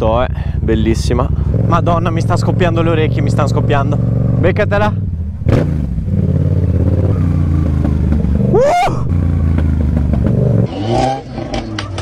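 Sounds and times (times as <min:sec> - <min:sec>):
motorcycle engine running: 0:00.0 - 0:12.0
rising and falling whoop: 0:07.1 - 0:09.2.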